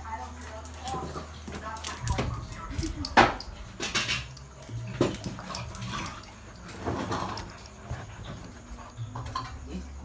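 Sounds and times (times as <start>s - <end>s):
dog scuffling on tiled floor: 0.0s - 9.6s.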